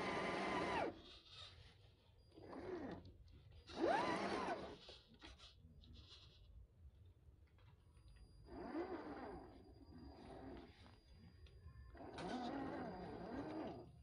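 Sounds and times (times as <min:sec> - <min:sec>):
small electric motor whining: 0:00.0 - 0:01.6, 0:02.3 - 0:05.5, 0:08.4 - 0:14.0.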